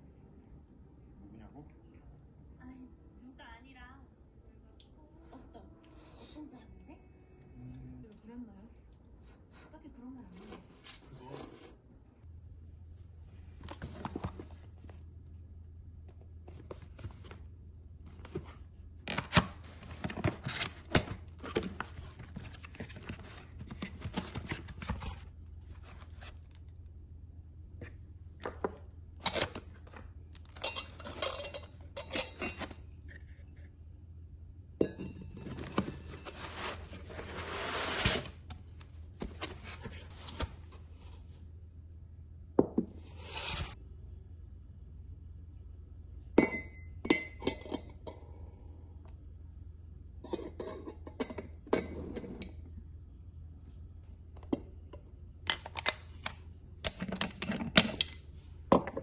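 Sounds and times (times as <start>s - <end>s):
ceramic clinks on hard surface: 46.4s - 48.0s.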